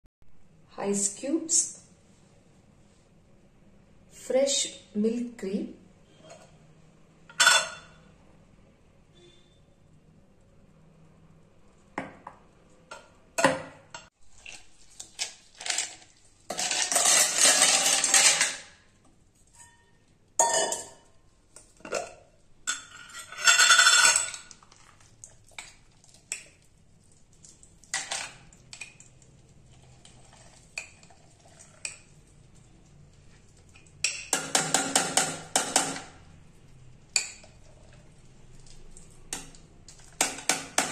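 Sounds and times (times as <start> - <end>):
ice and utensils clattering in jar: 14.4 - 18.7, 21.9 - 24.9
spoon scraping glass jar: 15.6 - 18.7, 22.7 - 24.9, 29.7 - 32.2.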